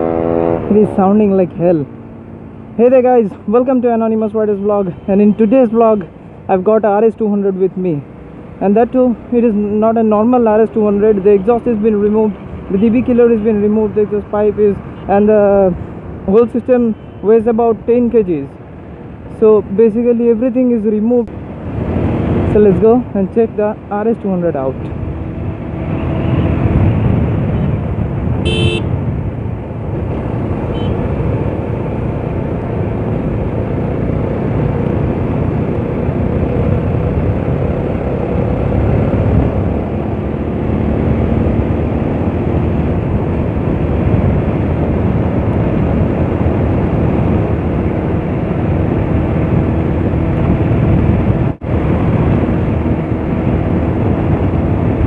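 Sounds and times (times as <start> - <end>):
horn beep: 28.4 - 28.9, 30.7 - 31.0.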